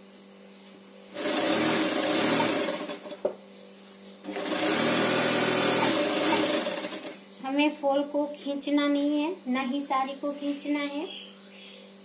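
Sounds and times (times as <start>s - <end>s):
sewing machine stitching: 1.2s - 3.2s, 4.3s - 7.2s.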